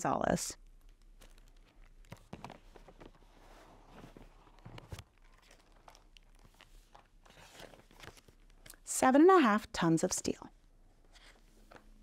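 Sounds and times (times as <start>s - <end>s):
book pages turning: 0.8s - 8.8s, 11.0s - 12.0s.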